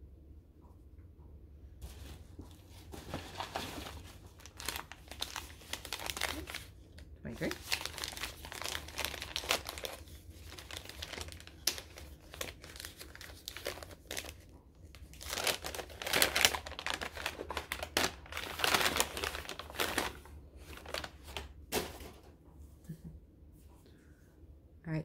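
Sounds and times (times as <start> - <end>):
gift wrapping crumpled and torn: 2.8 - 21.5.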